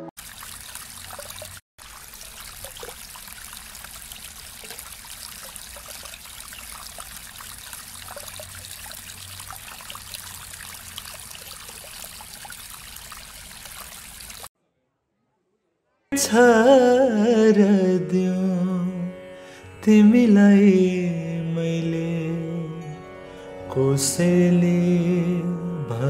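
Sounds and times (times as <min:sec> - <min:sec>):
waterfall splashing into pond: 0:00.2 - 0:14.5.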